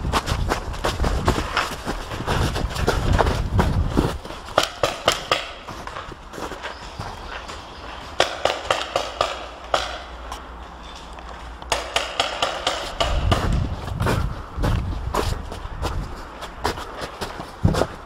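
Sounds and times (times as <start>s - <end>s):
paintball markers firing: 11.6s - 13.7s.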